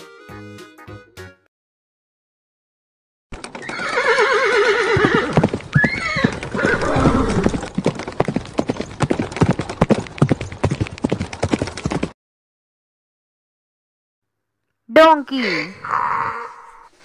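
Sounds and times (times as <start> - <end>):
hooves clip-clopping: 3.3 - 12.2
horse whinnying: 3.4 - 7.7.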